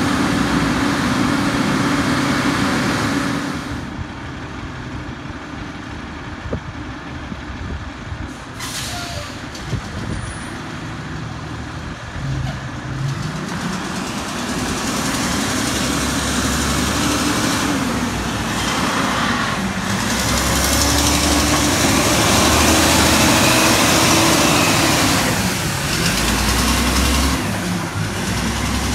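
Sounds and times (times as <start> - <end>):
garbage truck engine passing: 9.2 - 28.9.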